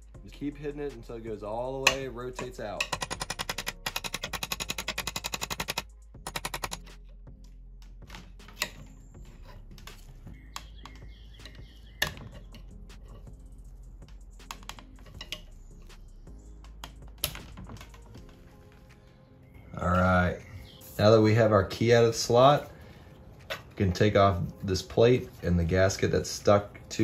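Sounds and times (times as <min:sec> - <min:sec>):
hammer tapping on steel punch: 0:01.8 - 0:06.8
metal clicks and knocks: 0:01.8 - 0:06.9, 0:14.4 - 0:15.5.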